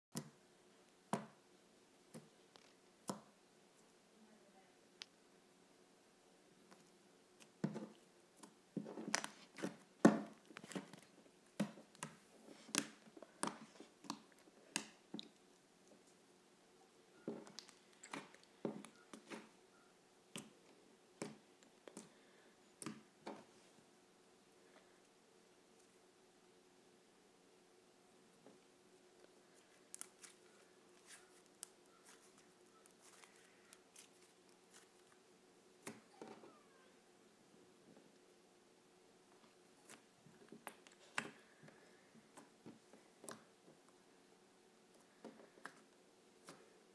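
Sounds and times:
low steady hum: 0.2 - 46.9
slime squishing: 29.6 - 35.2.

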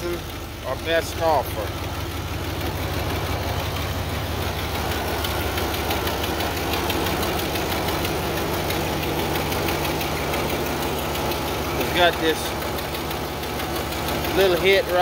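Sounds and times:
man talking: 0.0 - 1.7, 11.8 - 12.6, 14.3 - 15.0
diesel engine idling with clatter: 0.0 - 15.0.

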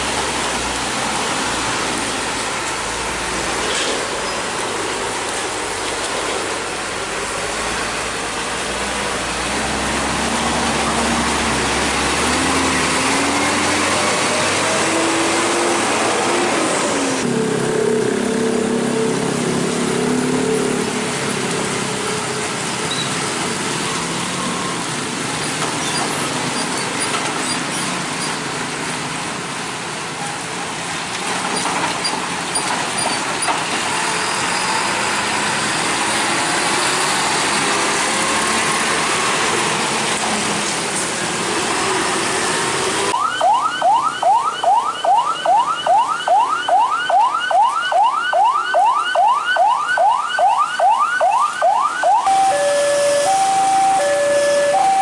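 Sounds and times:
tyres hissing on wet pavement: 0.0 - 17.2, 19.0 - 43.1, 52.3 - 55.0
diesel trucks passing: 0.0 - 55.0
ambulance siren yelping: 43.2 - 55.0.

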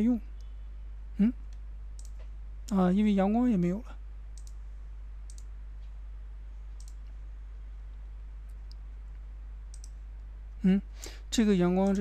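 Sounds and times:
low electrical hum: 0.0 - 12.0
computer mouse clicks: 1.5 - 2.8, 4.3 - 4.6, 5.2 - 5.5, 6.8 - 7.2, 9.7 - 10.0.

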